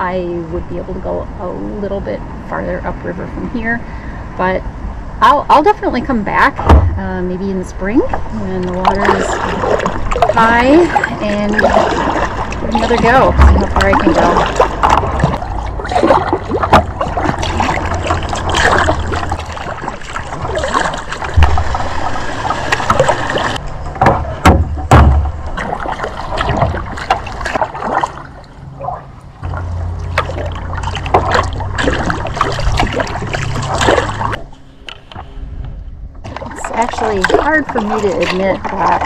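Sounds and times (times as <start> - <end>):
low rumble: 0.0 - 39.0
water trickling off paddle: 8.1 - 24.3, 25.1 - 35.2, 36.2 - 39.0
kayak paddle splashing in water: 8.1 - 34.5, 36.2 - 39.0
heavy thumps: 21.3 - 23.3, 24.0 - 25.4.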